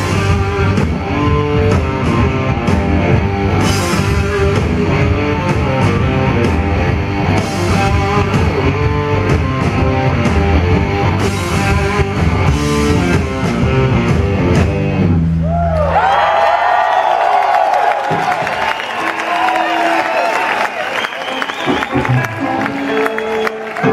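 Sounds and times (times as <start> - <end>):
rock band playing live: 0.0 - 15.6, 18.1 - 23.9
crowd cheering and whistling: 15.4 - 23.9.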